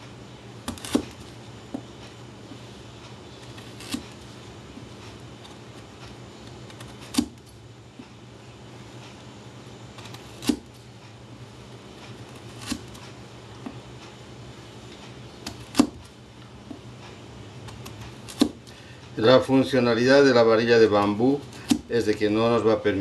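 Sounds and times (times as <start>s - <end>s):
low steady hum: 0.0s - 23.0s
knife slicing carrot: 0.6s - 1.9s, 3.3s - 7.5s, 9.9s - 10.8s, 12.0s - 13.8s, 15.4s - 16.1s, 17.6s - 18.7s.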